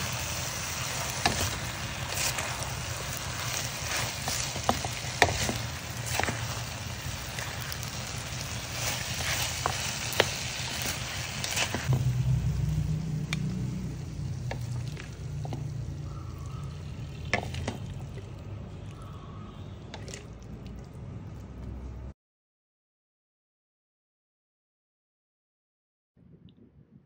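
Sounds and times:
metal spatula scraping wok: 0:00.0 - 0:12.5
pork sizzling in a wok: 0:00.0 - 0:18.6
low hum: 0:11.8 - 0:19.8, 0:26.2 - 0:27.0.

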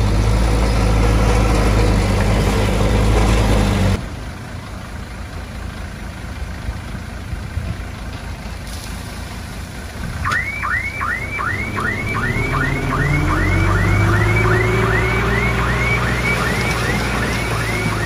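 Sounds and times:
diesel engine running: 0:00.0 - 0:18.0
reversing alarm chirps: 0:10.2 - 0:18.0.

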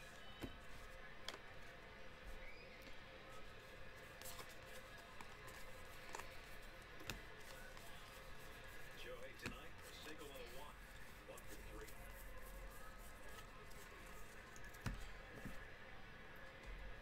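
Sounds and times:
faint background music: 0:00.0 - 0:17.0
trading cards flipping: 0:04.1 - 0:12.0.

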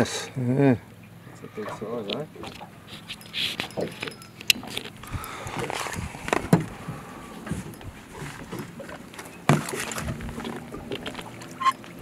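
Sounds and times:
fish splashing: 0:01.5 - 0:12.0
knocks on aluminium boat: 0:06.3 - 0:07.7.

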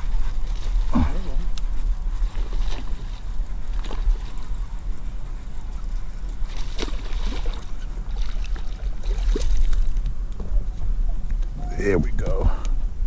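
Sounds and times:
fish splashing and thrashing: 0:00.0 - 0:05.1, 0:05.8 - 0:10.2
water sloshing: 0:00.0 - 0:10.8
steady low rumble: 0:00.0 - 0:13.0.

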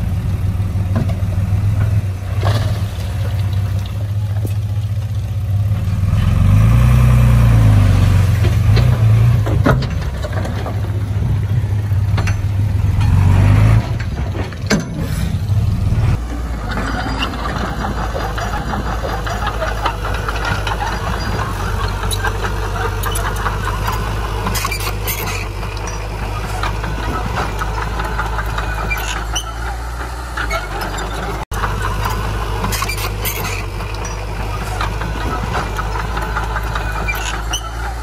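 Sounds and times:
heavy diesel engine running: 0:00.0 - 0:38.0
high-pitched metallic squeaks: 0:12.3 - 0:38.0.

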